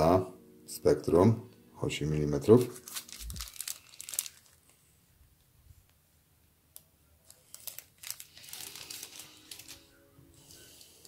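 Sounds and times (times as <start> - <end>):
plastic bags crinkling: 2.6 - 4.8, 7.2 - 10.0.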